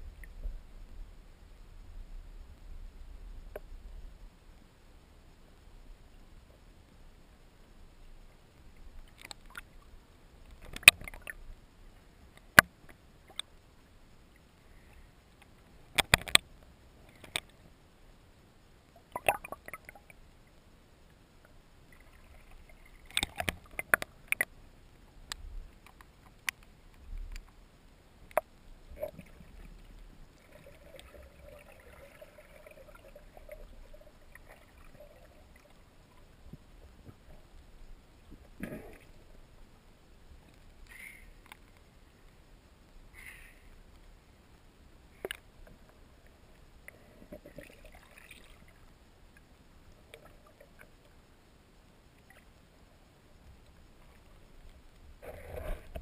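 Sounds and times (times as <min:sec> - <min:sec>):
faint steady hum: 0:00.0 - 0:56.0
low water rumble: 0:00.0 - 0:56.0
underwater clicks and knocks: 0:10.5 - 0:11.4, 0:15.9 - 0:16.5, 0:17.1 - 0:17.6, 0:23.0 - 0:24.5.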